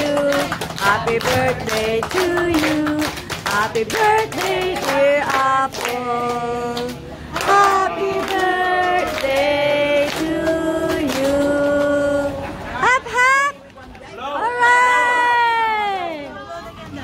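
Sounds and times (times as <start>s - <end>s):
hands clapping in rhythm: 0.0s - 12.1s
group of people singing: 0.0s - 12.7s.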